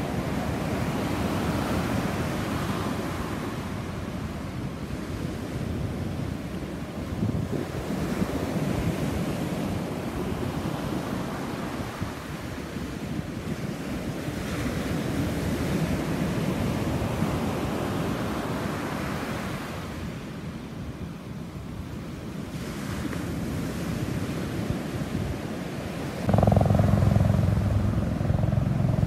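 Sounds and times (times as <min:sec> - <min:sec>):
wind buffeting microphone: 0:00.0 - 0:14.4, 0:23.3 - 0:29.0.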